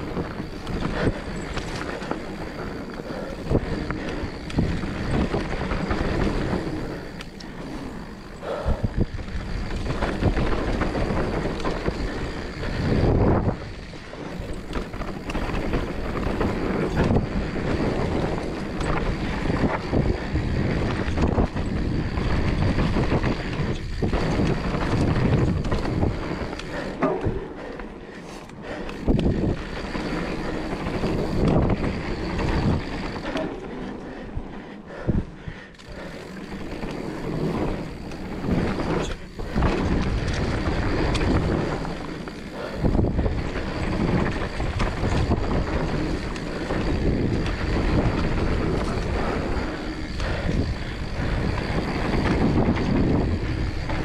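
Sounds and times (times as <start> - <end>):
bike knocking and rattling: 0.0 - 54.0
bike tyres rolling over dirt: 0.0 - 54.0
wind on microphone: 8.4 - 27.6, 28.9 - 33.4, 36.0 - 54.0.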